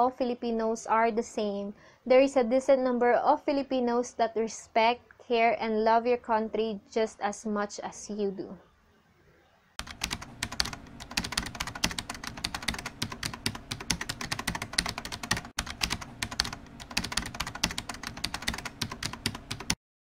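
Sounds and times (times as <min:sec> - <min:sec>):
keyboard typing clicks: 0:09.8 - 0:19.8.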